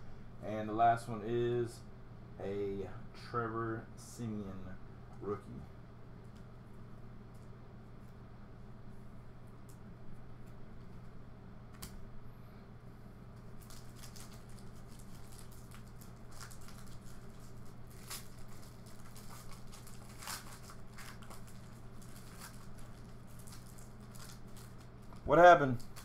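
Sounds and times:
steady low hum: 0.0s - 26.0s
foil pack crinkling: 13.4s - 26.0s.

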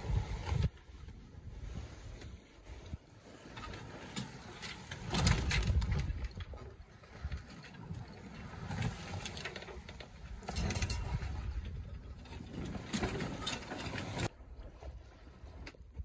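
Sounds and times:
wind and water rushing: 0.0s - 16.0s
boat gear clicks and creaks: 2.2s - 14.3s.

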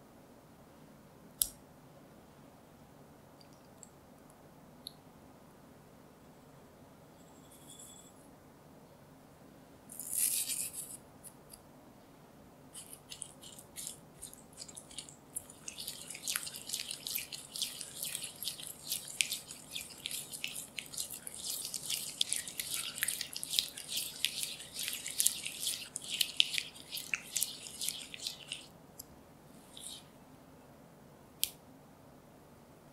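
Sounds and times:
spatula scraping glass bowl: 12.8s - 28.7s
sugar pouring hiss: 12.8s - 28.7s.

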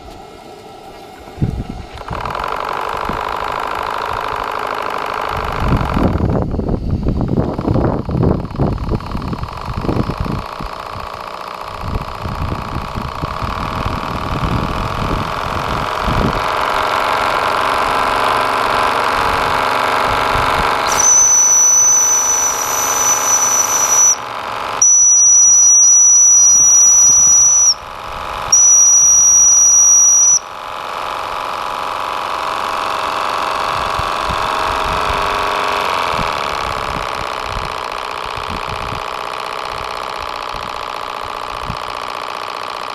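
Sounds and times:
model steam engine running: 0.0s - 42.9s
shrill steam whistle blasts: 20.8s - 27.8s, 28.5s - 30.5s.

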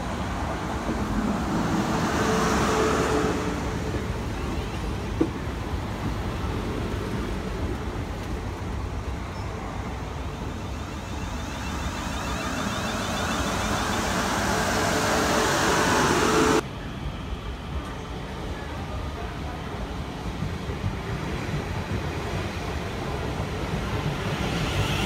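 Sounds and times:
electric train running past: 0.0s - 25.0s
pitched whine: 10.2s - 16.6s.

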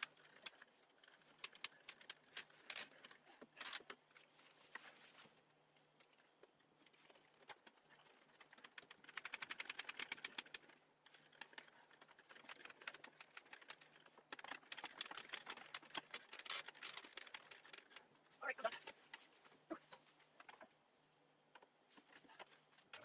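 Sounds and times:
screwdriver ratcheting clicks: 1.4s - 4.0s, 12.4s - 18.0s.

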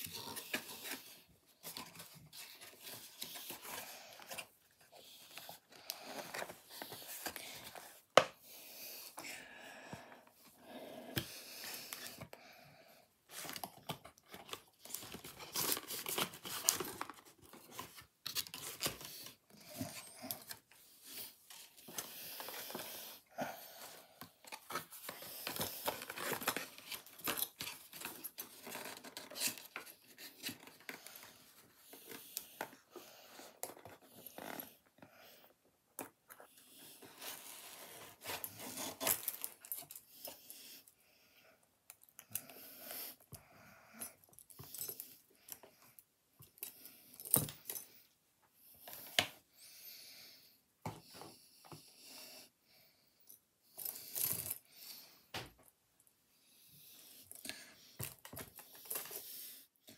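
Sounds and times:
packaging rustling and crinkling: 13.3s - 20.7s, 24.4s - 31.3s.

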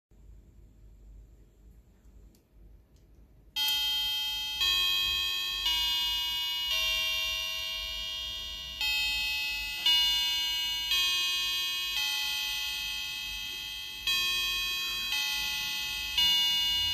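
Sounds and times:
electronic bell-like chime tune: 3.6s - 16.9s.

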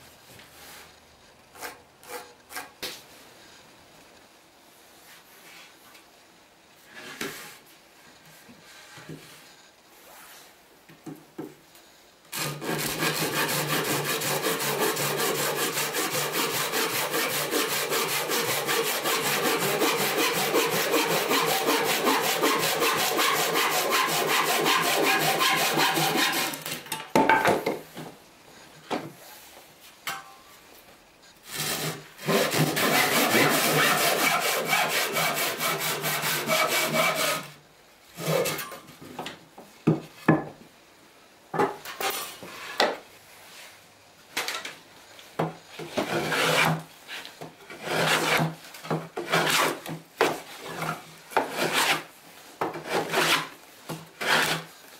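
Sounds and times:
hand saw cutting wood: 1.5s - 2.8s, 12.3s - 26.8s, 31.4s - 37.6s, 38.2s - 38.7s, 45.8s - 52.1s, 52.7s - 53.6s, 54.2s - 54.7s.

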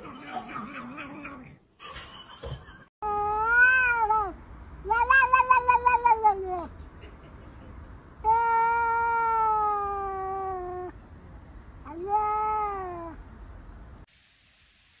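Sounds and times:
cat meowing: 3.2s - 6.7s.

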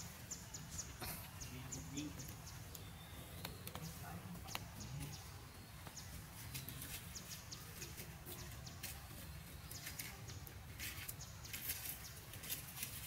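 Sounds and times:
chirps: 0.0s - 8.8s.

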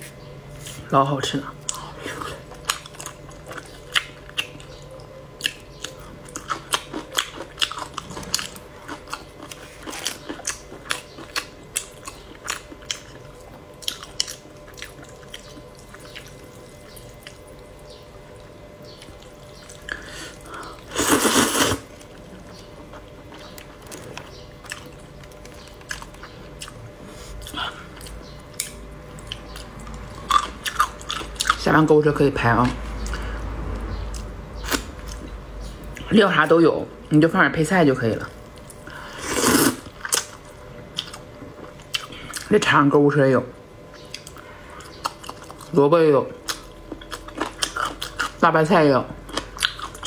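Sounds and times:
wet chewing and smacking: 1.6s - 20.9s, 21.9s - 31.7s, 38.4s - 42.5s, 43.8s - 45.8s, 46.4s - 48.4s, 49.2s - 50.0s
loud slurp: 20.9s - 21.9s.

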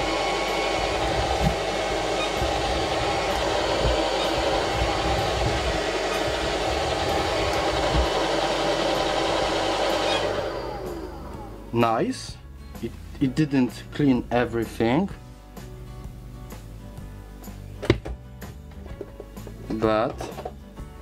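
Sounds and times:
robot vacuum cleaner whirring: 0.0s - 11.7s.

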